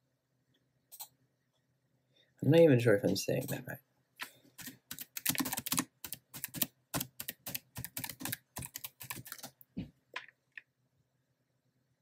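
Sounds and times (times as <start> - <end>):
typing on computer keyboard: 4.6 - 9.6.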